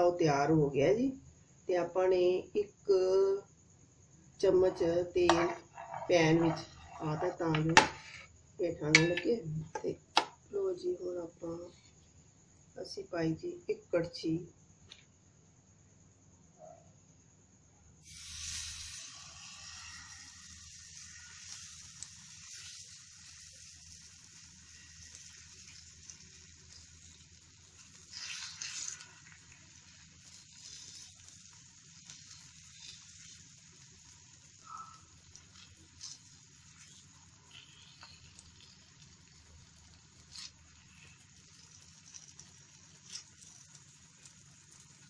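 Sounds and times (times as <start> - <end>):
batter sizzling in hot oil: 3.5 - 10.8, 18.0 - 45.0.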